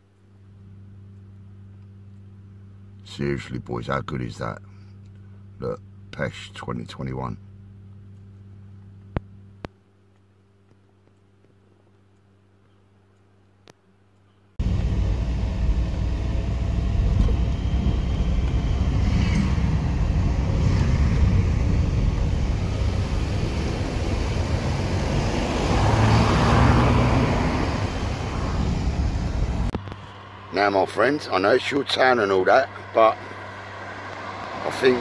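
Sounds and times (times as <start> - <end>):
street traffic: 14.6 - 35.0
van and cars driving past: 14.6 - 35.0.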